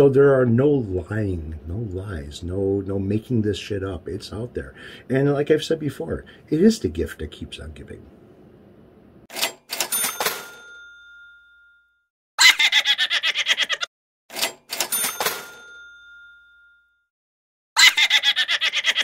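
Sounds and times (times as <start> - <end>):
cash register ka-ching: 9.3 - 11.4, 14.3 - 16.7
snickering laugh: 12.4 - 13.9, 17.8 - 19.0.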